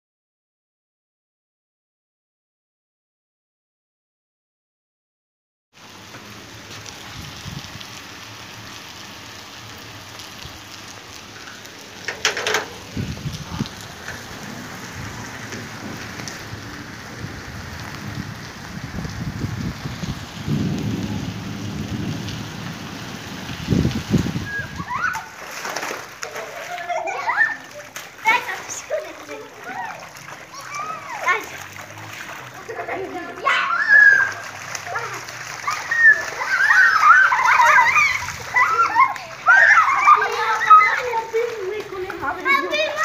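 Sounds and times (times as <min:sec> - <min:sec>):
heavy rain: 0:05.8 - 0:43.0
thunder rumbling: 0:12.0 - 0:25.0.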